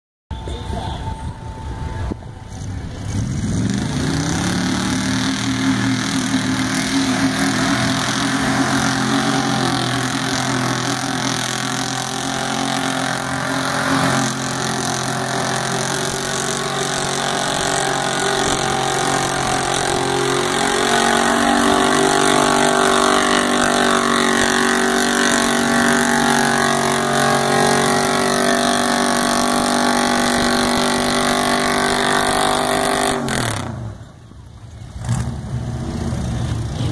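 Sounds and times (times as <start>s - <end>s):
pickup truck engine revving: 1.6s - 36.9s.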